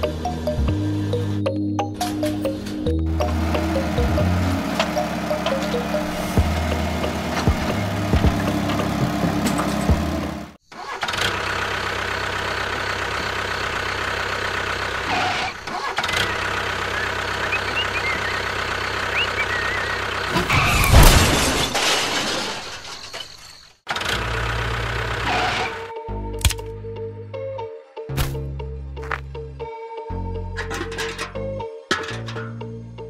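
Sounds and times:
tractor engine running: 0:00.0 - 0:20.9, 0:23.9 - 0:26.6, 0:30.4 - 0:33.0.

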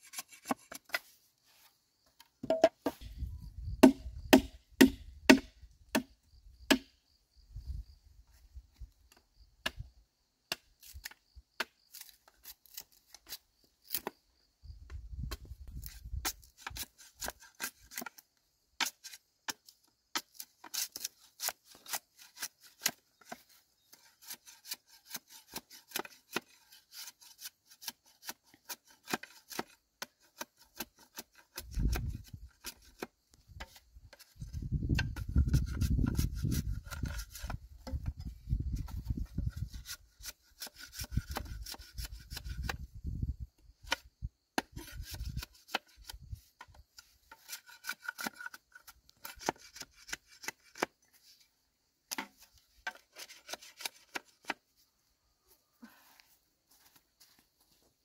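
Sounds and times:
machete cracking and scraping bamboo: 0:00.0 - 0:01.2, 0:10.5 - 0:14.2, 0:15.6 - 0:42.8, 0:43.8 - 0:51.5, 0:52.1 - 0:54.6.

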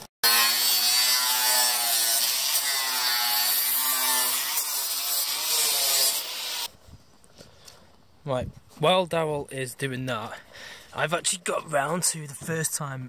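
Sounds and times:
angle grinder cutting metal: 0:00.0 - 0:06.7.

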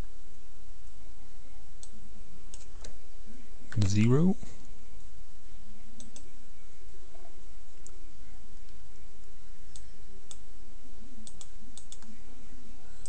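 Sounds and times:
computer mouse clicks: 0:06.0 - 0:06.3, 0:11.2 - 0:12.1.

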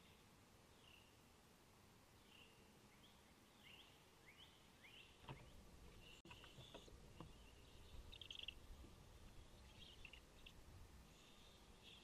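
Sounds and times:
owlets chirping: 0:04.8 - 0:12.0.

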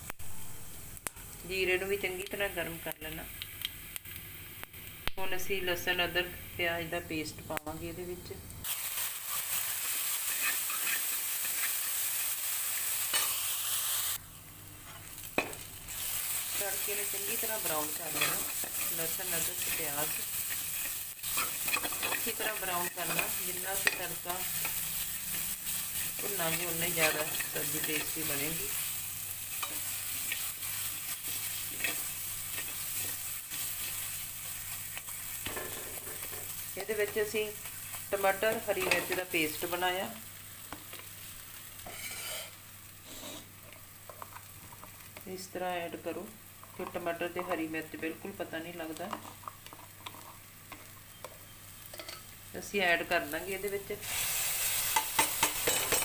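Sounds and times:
paste sizzling in hot oil: 0:08.6 - 0:14.3, 0:14.9 - 0:56.0
metal spoon scraping pan: 0:10.3 - 0:11.8, 0:17.6 - 0:28.9, 0:29.5 - 0:34.1, 0:41.8 - 0:43.5.

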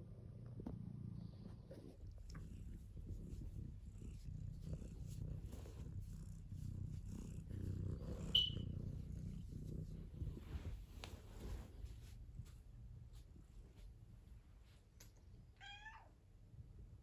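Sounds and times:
cat purring: 0:00.0 - 0:14.2.

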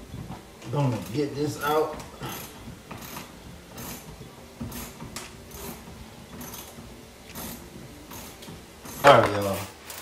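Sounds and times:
hand ratchet clicking: 0:00.9 - 0:04.0, 0:04.7 - 0:05.8, 0:06.4 - 0:10.0.

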